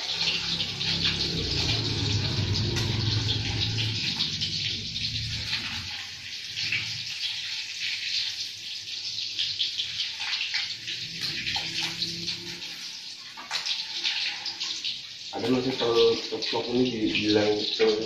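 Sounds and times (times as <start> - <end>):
low hum: 0.0 - 6.9
egg sizzling in hot oil: 0.0 - 18.0
spatula scraping and tapping pan: 9.4 - 15.0.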